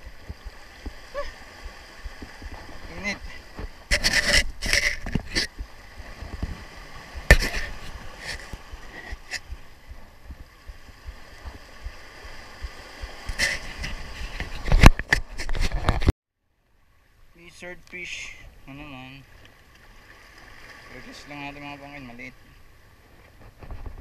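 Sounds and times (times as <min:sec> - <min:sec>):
waves splashing against rocks: 0:00.0 - 0:15.6.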